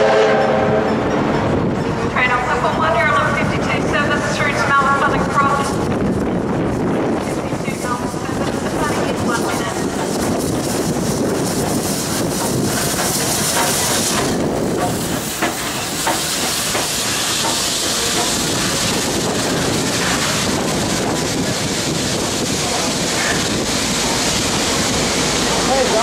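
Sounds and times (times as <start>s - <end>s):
steam locomotive hissing: 0.0s - 26.0s
train wheel clicks over rail joints: 12.2s - 20.4s.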